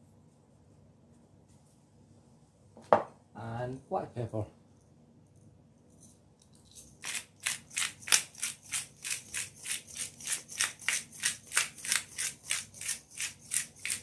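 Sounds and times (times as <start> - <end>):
pepper mill grinding: 6.0 - 14.0.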